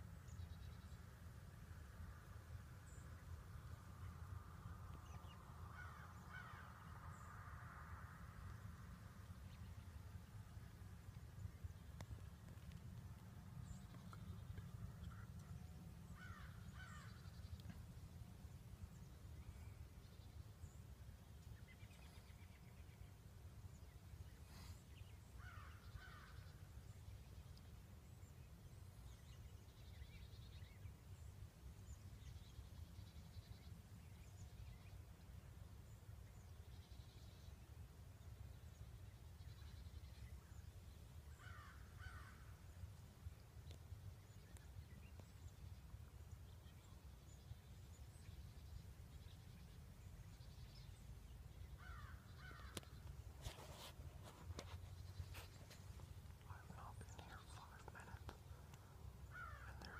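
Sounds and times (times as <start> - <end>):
faint bird calling: 16.2 - 17.7, 41.3 - 42.5, 56.7 - 59.9.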